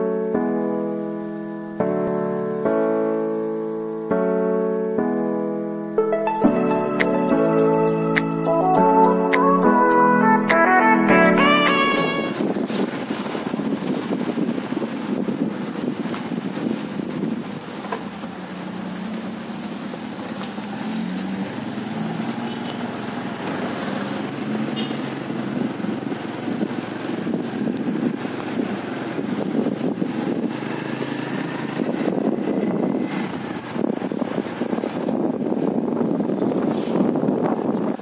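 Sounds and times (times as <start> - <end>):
wind rushing over microphone: 11.1 - 22.2, 23.0 - 38.0
motorcycle engine running: 12.4 - 37.1.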